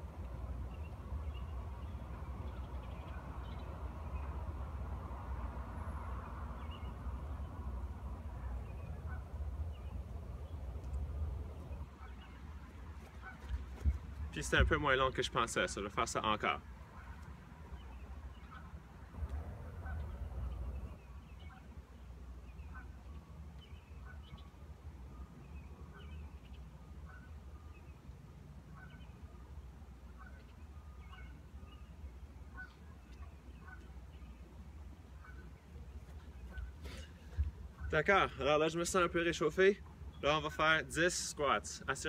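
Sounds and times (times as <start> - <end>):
steady low rumble: 0.0 - 16.0, 16.6 - 26.4
distant bird calling: 0.0 - 42.0.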